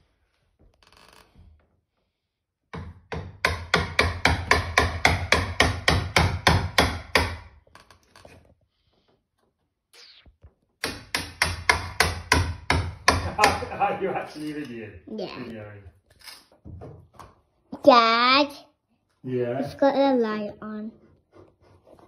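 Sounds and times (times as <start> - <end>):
hammer striking wood: 2.7 - 7.6, 10.8 - 13.8.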